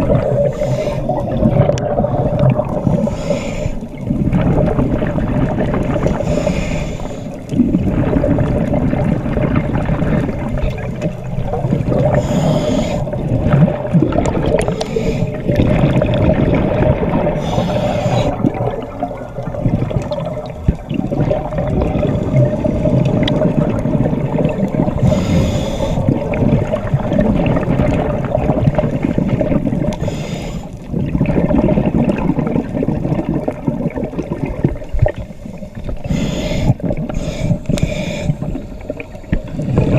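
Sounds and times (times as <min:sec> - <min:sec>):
underwater exhaled air bubbling: 0:00.0 - 0:39.9
regulator inhalation hiss: 0:00.4 - 0:01.1, 0:03.0 - 0:03.9, 0:06.1 - 0:07.4, 0:12.2 - 0:13.2, 0:14.7 - 0:15.4, 0:17.4 - 0:18.4, 0:25.0 - 0:26.1, 0:30.0 - 0:30.7, 0:35.4 - 0:39.4.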